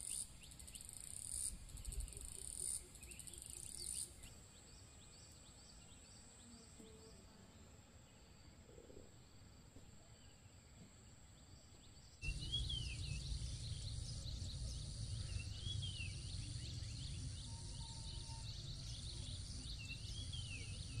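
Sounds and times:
insects droning: 0.0 - 21.0
bird call: 12.2 - 21.0
low rumble: 12.2 - 21.0.

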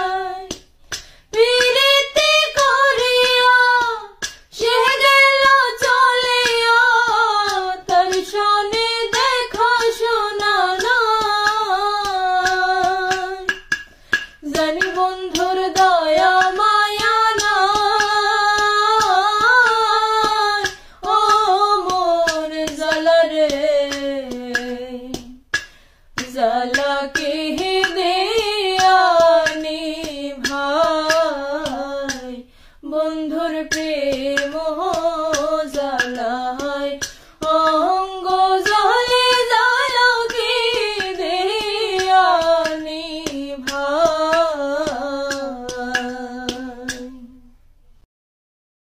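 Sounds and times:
steady tapping beat: 0.0 - 47.4
woman singing a slow folk song: 0.0 - 47.6.

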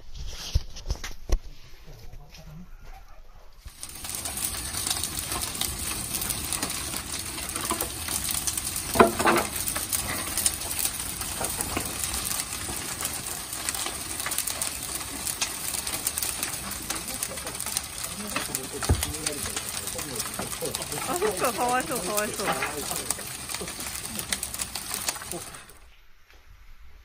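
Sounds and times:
fire crackling and hissing: 3.6 - 26.7.

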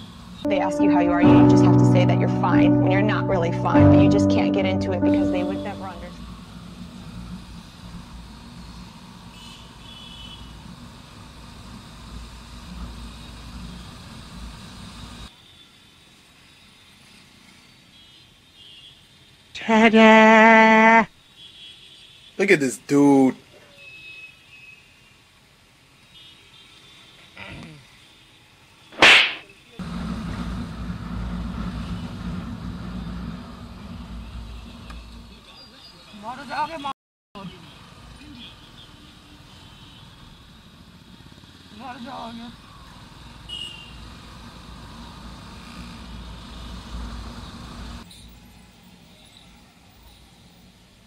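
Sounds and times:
wind and road noise: 29.8 - 35.3.

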